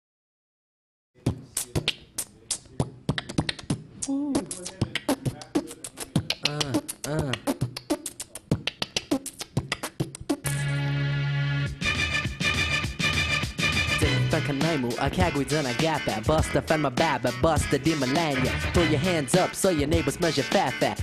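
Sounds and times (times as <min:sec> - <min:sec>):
man beatboxing: 0:01.2 - 0:10.5, 0:14.0 - 0:21.0.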